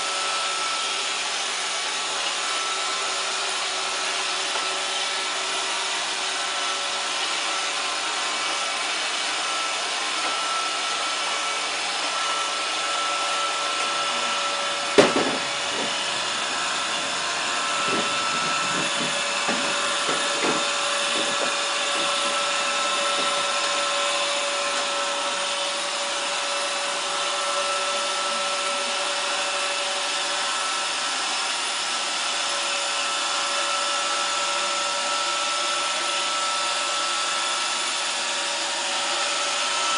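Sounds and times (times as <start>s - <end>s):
robot vacuum whirring: 0.0s - 39.9s
knocks: 14.9s - 16.1s, 16.9s - 22.4s.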